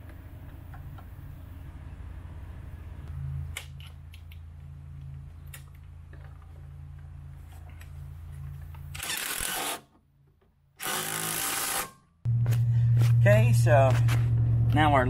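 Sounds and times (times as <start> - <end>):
steady low hum: 12.2 - 15.0.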